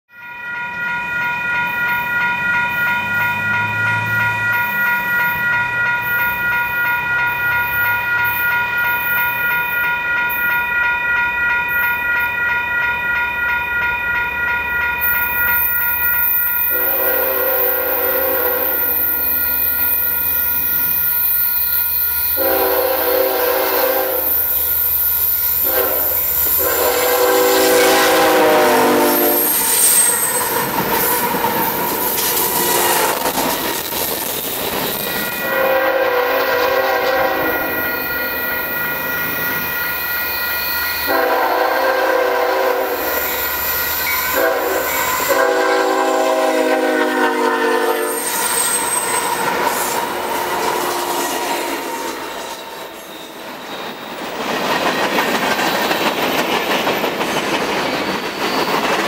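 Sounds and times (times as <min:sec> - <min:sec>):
bell ringing: 0:00.1 - 0:23.0, 0:23.6 - 0:41.3, 0:42.8 - 0:46.0, 0:48.1 - 0:54.1
diesel locomotives rumbling: 0:16.5 - 0:59.0
train horn blasts: 0:16.7 - 0:19.2, 0:22.4 - 0:24.4, 0:25.6 - 0:30.4, 0:32.4 - 0:33.4, 0:35.3 - 0:38.4, 0:41.0 - 0:43.2, 0:44.3 - 0:53.0.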